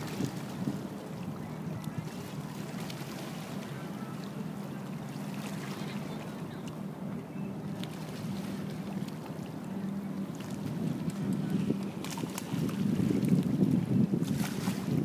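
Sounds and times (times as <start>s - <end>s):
boat engine droning: 0.0s - 15.0s
water rushing: 0.0s - 15.0s.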